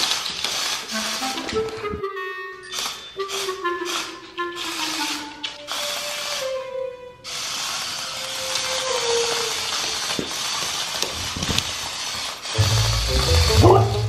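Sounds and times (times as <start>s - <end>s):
steady whirring noise: 2.7s - 14.0s
slow held melody: 12.6s - 14.0s.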